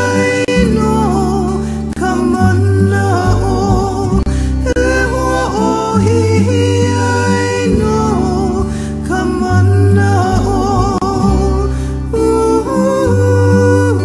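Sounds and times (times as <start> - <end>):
person singing with vibrato: 0.0 - 14.0
plucked strings: 0.0 - 14.0
sustained bass notes: 0.0 - 14.0.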